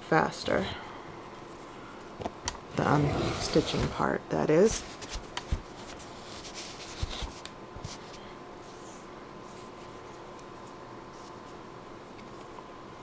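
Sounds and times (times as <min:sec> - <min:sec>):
soft scrapes: 0:02.8 - 0:04.0.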